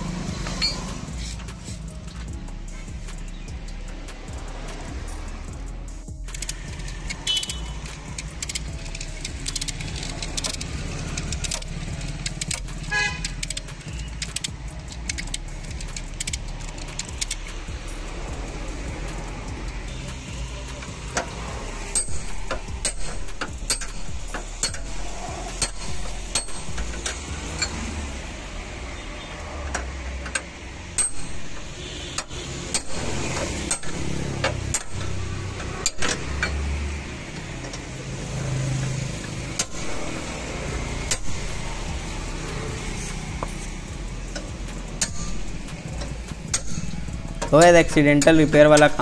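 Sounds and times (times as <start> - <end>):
hammer striking steel bar: 21.9 - 27.8.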